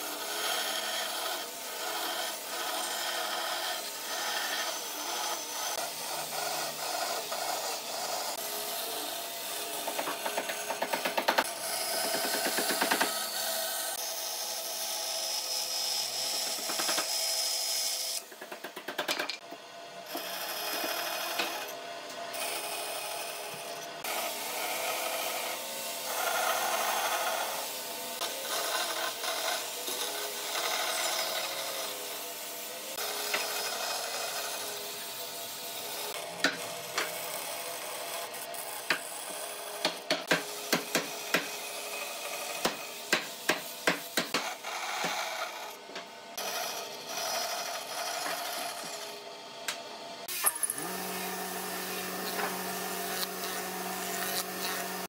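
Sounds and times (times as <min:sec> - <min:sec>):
band saw cutting wood: 0:00.0 - 0:18.7, 0:19.4 - 0:55.0
sharp clicks and knocks: 0:18.3 - 0:19.4.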